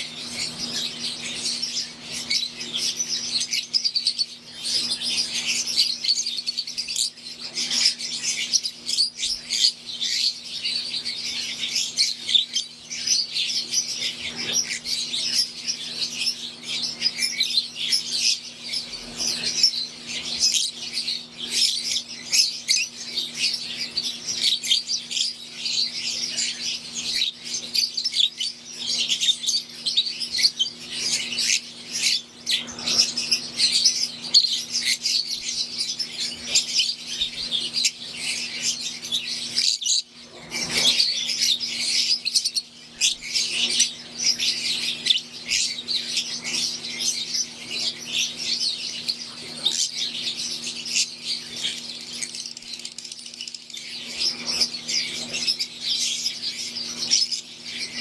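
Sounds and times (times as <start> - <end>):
lovebirds chirping: 0.0 - 58.0.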